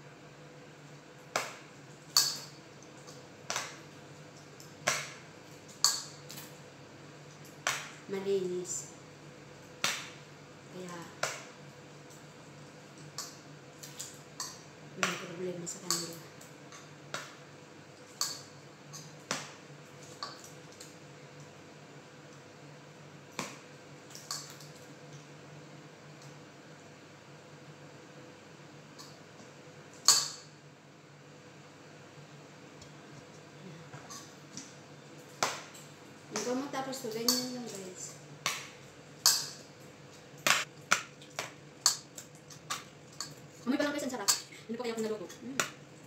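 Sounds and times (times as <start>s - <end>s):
faint steady hum: 0.0s - 46.0s
metal utensil tapping steel bowl: 37.2s - 37.8s.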